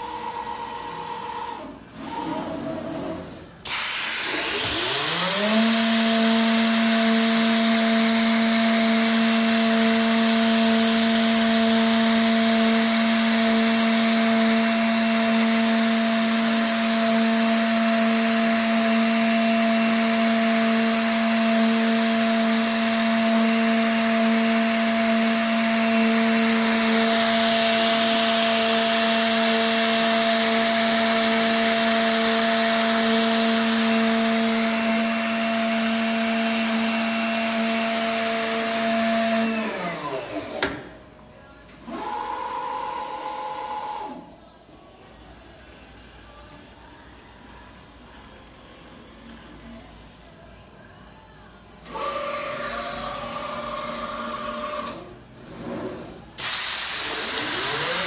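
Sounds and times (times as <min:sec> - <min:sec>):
woodworking machine whine: 0:00.0 - 0:40.8, 0:51.9 - 0:55.1, 0:56.4 - 0:58.0
hiss: 0:56.4 - 0:58.0.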